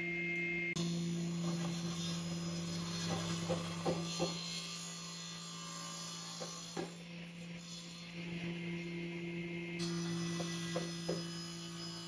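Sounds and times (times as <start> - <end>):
steady low hum: 7.0 - 10.2.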